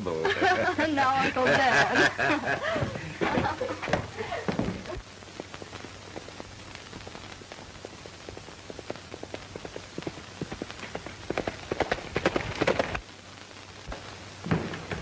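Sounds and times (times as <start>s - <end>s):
film soundtrack hiss: 0.0s - 15.0s
horse hoofbeats: 7.0s - 13.0s.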